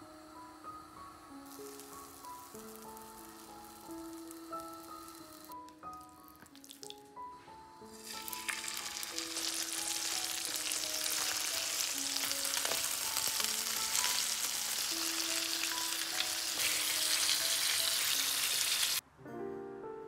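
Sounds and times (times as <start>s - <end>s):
soft background music: 0.0s - 20.0s
chicken sizzling in frying pan: 1.4s - 5.6s, 8.0s - 19.0s.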